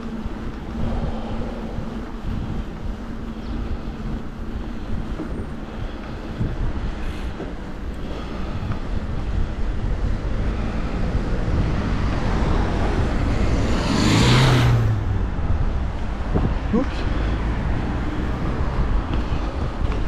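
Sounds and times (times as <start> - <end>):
road traffic noise: 0.0 - 20.0
wind rumbling on microphone: 0.0 - 20.0
car passing close: 10.1 - 15.7.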